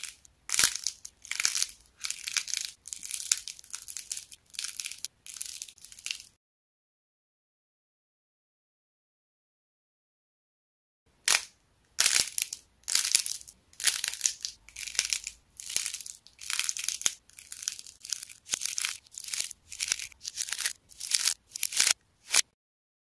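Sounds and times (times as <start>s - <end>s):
clay cracking and crinkling: 0.0s - 6.4s, 11.2s - 22.6s.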